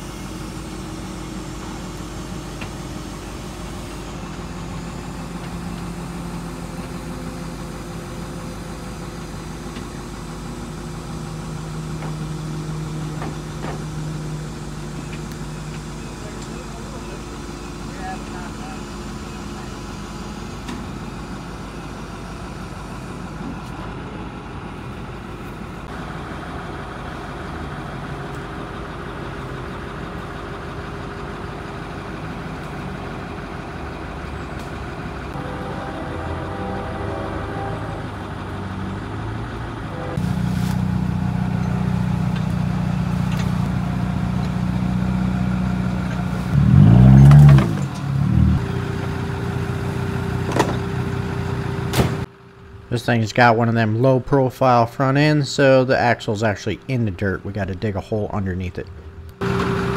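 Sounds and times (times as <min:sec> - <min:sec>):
truck engine revving: 0:28.7 - 0:52.3, 0:59.3 - 0:59.9.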